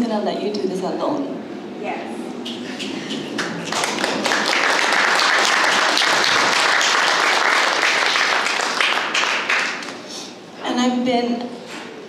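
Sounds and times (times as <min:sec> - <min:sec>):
audience applauding: 0:02.5 - 0:10.2.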